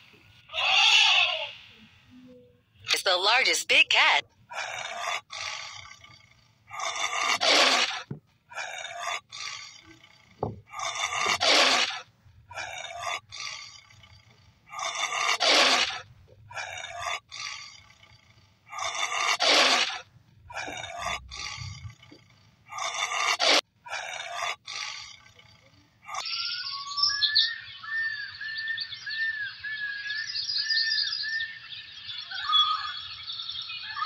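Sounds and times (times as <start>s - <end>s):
jaguar growls: 4.5s - 26.2s.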